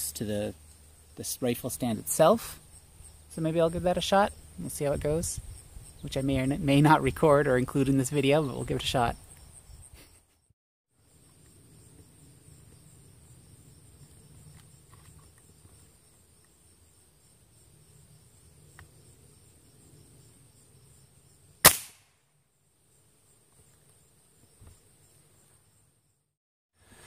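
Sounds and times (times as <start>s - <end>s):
air rifle shot crack: 21.6s - 22.2s.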